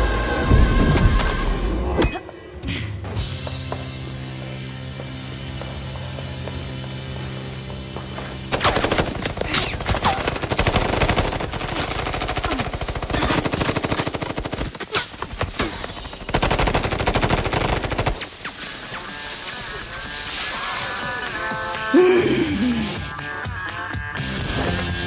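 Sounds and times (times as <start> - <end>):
rapid automatic gunfire: 8.5 - 18.4.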